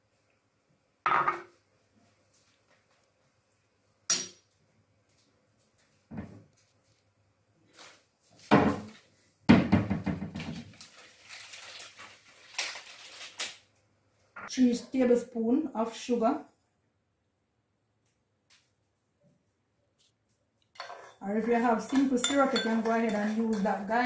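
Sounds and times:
kitchenware knocks and clicks: 0:09.5 - 0:10.6
kitchenware clattering on stone: 0:21.8 - 0:23.8.

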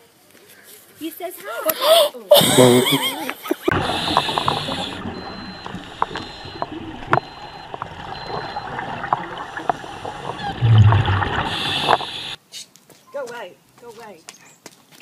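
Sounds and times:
bubbles gurgling underwater: 0:03.7 - 0:12.4
clicks underwater: 0:03.7 - 0:12.4.

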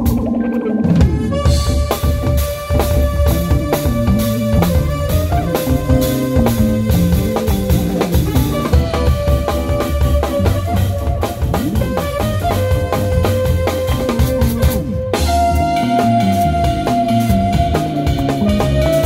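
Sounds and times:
drum kit: 0:00.0 - 0:19.0
keyboards: 0:00.0 - 0:19.0
trumpet held notes: 0:01.0 - 0:19.0.

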